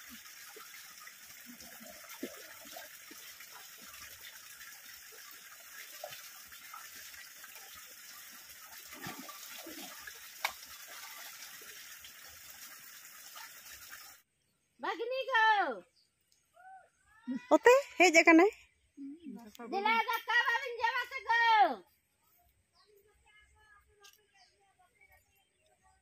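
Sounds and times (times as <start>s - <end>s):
splashes of wading: 0.0s - 14.2s
stream water running: 0.0s - 14.3s.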